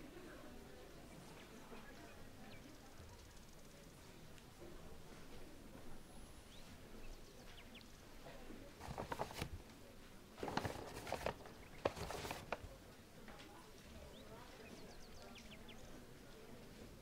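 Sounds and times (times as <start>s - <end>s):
rustling and light clatter: 8.8s - 14.0s.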